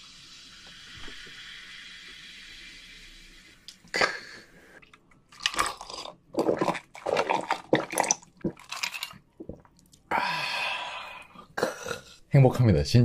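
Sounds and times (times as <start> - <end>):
person gulping a drink: 3.9 - 12.2
breathy exhale: 10.1 - 11.5.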